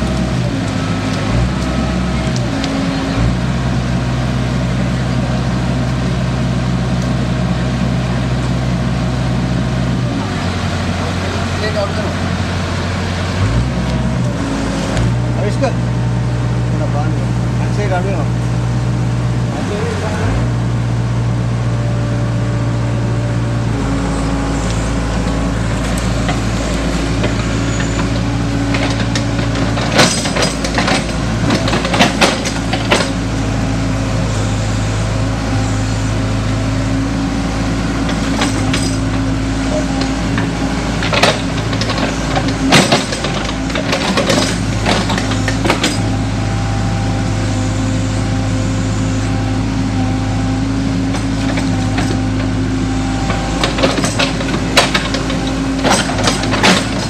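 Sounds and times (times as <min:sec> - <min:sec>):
excavator diesel engine running: 0:00.0 - 0:57.0
sharp metallic clanks: 0:27.2 - 0:33.2, 0:53.6 - 0:57.0.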